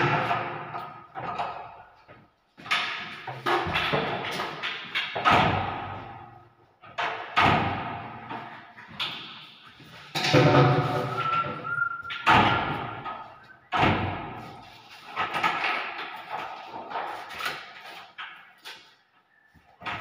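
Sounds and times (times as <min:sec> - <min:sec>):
door thudding and slamming: 0:05.2 - 0:06.2, 0:07.0 - 0:08.4, 0:13.7 - 0:14.4
door squeak: 0:10.6 - 0:13.4.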